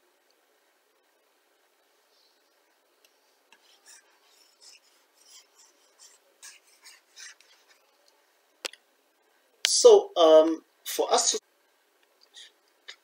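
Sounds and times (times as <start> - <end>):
stylus scratching on writing surface: 3.1 - 8.0.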